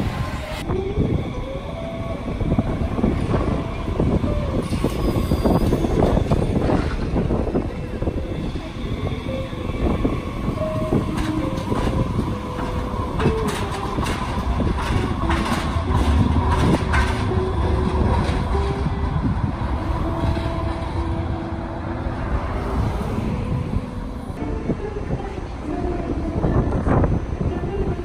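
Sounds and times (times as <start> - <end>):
light rail train rumbling: 0.0 - 28.0
train wheels clicking over rail joints: 9.9 - 21.2.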